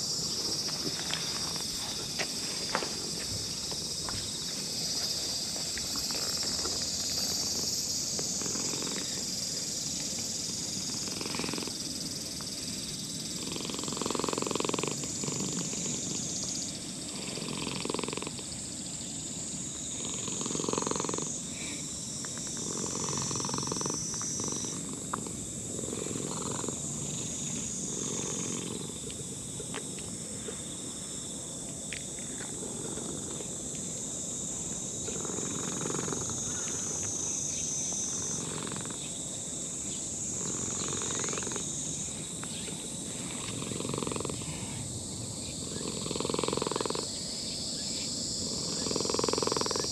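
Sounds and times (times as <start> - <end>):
cat purring: 7.1 - 9.4, 10.5 - 11.9, 13.4 - 16.3, 17.1 - 18.4, 19.9 - 21.3, 22.5 - 29.7, 32.4 - 33.6, 35.0 - 37.0, 38.1 - 39.0, 40.4 - 41.7, 43.3 - 44.8, 45.7 - 47.1, 48.5 - 49.9.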